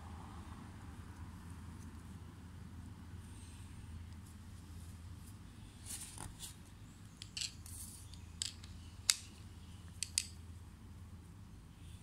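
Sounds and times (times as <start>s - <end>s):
small metal tool clicks: 9.9s - 10.4s.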